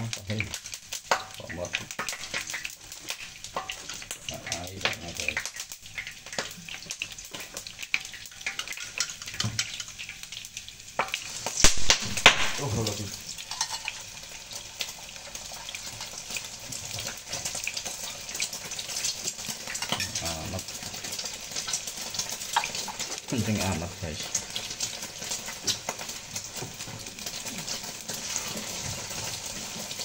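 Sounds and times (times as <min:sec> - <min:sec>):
shallots sizzling in hot oil: 0:00.0 - 0:30.0
spatula scraping a pan: 0:13.4 - 0:14.2, 0:27.6 - 0:29.9.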